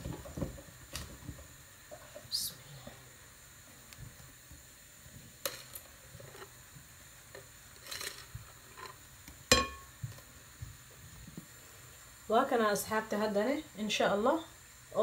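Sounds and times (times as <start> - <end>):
sharp glass clink: 9.5 - 9.8.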